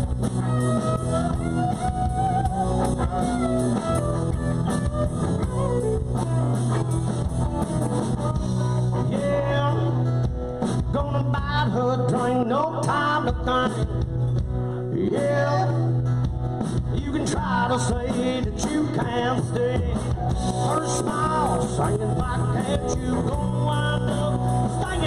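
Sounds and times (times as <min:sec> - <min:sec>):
guitar: 0:00.0 - 0:25.0
live rock band: 0:00.0 - 0:25.0
person singing: 0:00.2 - 0:10.2, 0:16.9 - 0:25.0.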